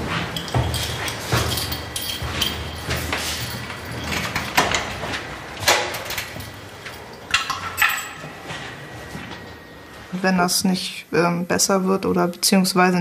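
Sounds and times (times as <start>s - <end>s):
footsteps: 0.0s - 10.4s.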